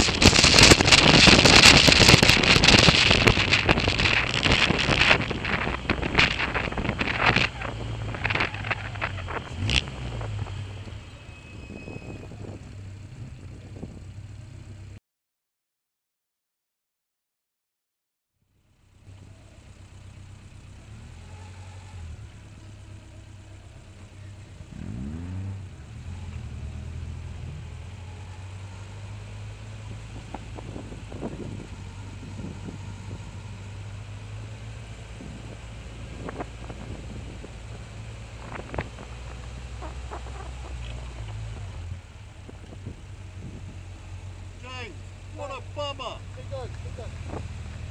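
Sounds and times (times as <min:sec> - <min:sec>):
engine revving blips: 0:00.0 - 0:13.4, 0:24.0 - 0:47.9
race car engine idling: 0:00.0 - 0:14.9, 0:18.6 - 0:25.0, 0:27.3 - 0:47.9.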